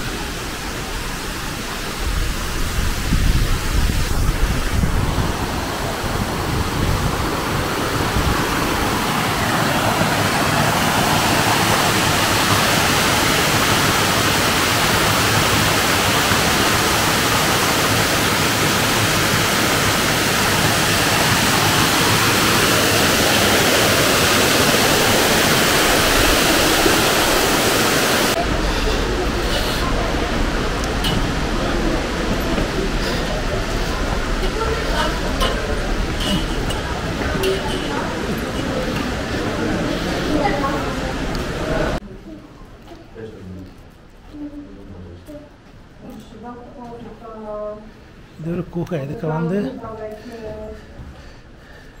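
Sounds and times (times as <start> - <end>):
waterfall rushing: 0.0 - 42.0.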